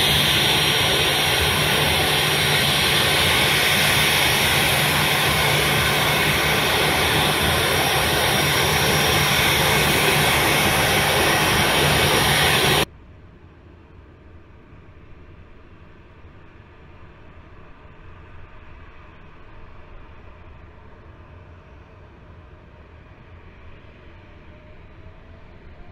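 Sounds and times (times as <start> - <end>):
jet engines running: 0.0 - 12.9.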